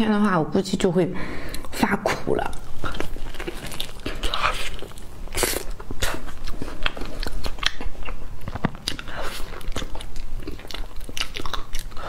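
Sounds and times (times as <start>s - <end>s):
wet chewing sounds: 2.4s - 12.0s.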